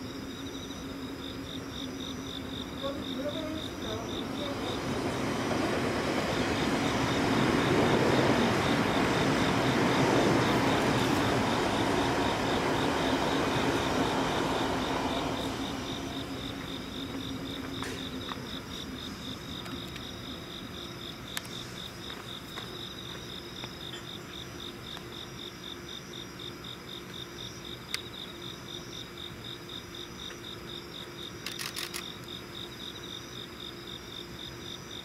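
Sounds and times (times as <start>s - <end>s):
train running: 0.0s - 25.1s
crickets chirping: 0.0s - 35.0s.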